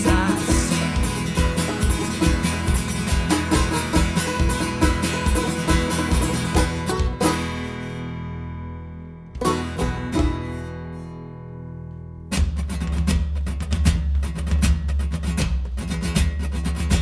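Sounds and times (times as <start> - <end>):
folk-rock band playing: 0.0 - 11.5.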